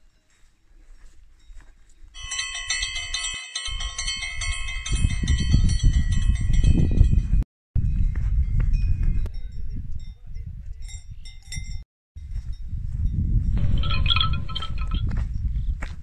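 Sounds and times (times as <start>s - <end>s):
cowbell clanking: 2.2s - 7.3s, 13.6s - 15.2s
low wind rumble on microphone: 3.7s - 16.0s.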